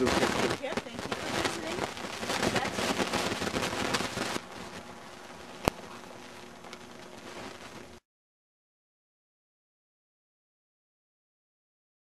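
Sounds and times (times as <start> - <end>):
crackling rustling microphone noise: 0.0 - 8.0
steady hiss: 0.0 - 8.0.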